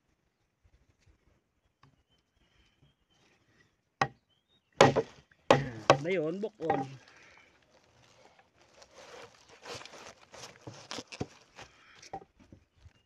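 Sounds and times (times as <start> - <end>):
light knocks of bamboo pole: 4.8 - 6.9
pole scraping on dry grass: 6.6 - 12.2.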